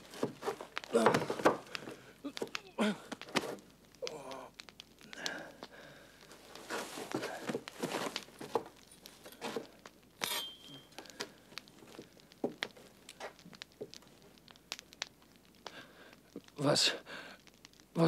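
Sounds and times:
clothing rustling: 0.0 - 1.9, 6.3 - 9.7
shuffling feet: 6.7 - 8.7.

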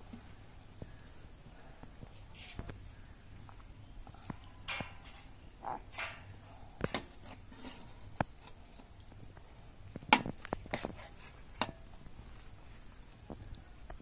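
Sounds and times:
metal ladle scraping a pot: 6.9 - 8.6.

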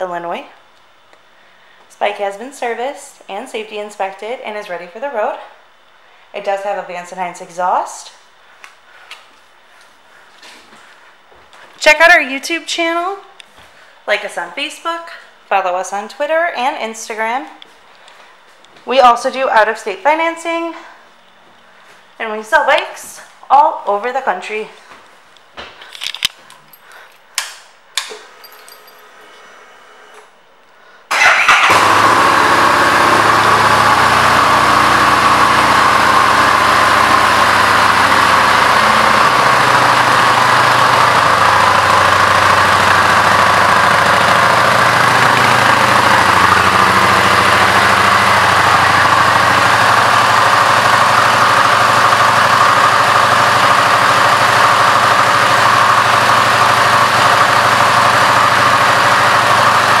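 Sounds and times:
motorcycle engine starting: 31.1 - 60.0
motorcycle engine idling: 31.2 - 60.0.

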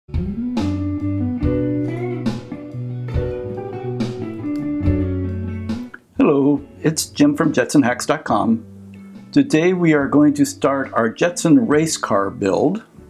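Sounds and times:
plucked guitar notes: 0.6 - 6.8.

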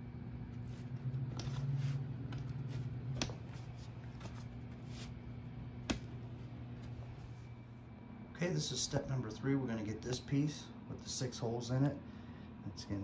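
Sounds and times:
steady low hum: 0.0 - 13.0
rustling and handling: 0.4 - 7.6.

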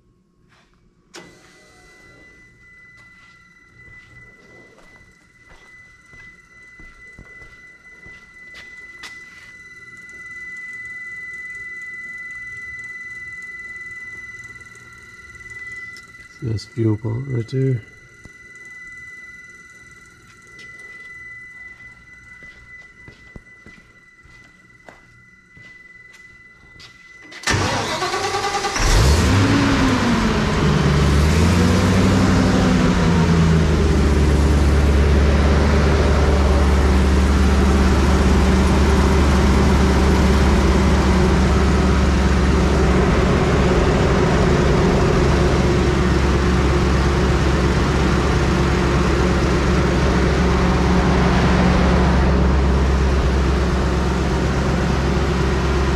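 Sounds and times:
electric fuel pump whining: 1.1 - 55.9
starter cranking engine: 27.4 - 30.6
engine revving and running: 27.4 - 55.9.

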